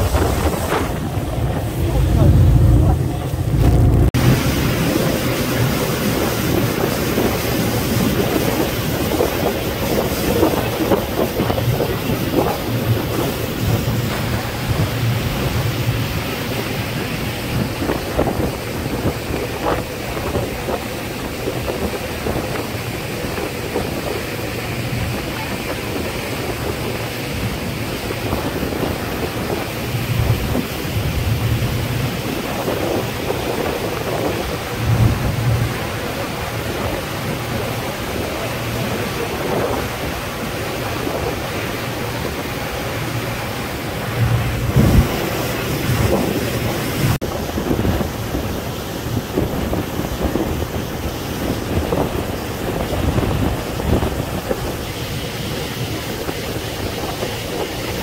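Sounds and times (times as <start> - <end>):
water rushing along hull: 0.0 - 58.0
wind buffeting the microphone: 0.0 - 58.0
faint engine hum: 0.8 - 6.3.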